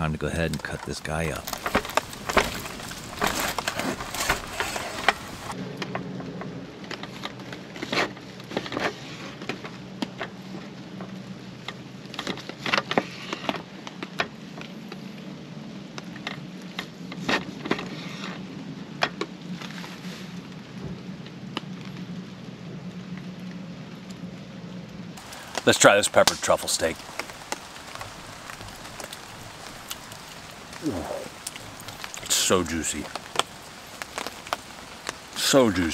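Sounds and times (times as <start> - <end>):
campfire crackling and popping: 0.0 - 6.1, 25.2 - 35.9.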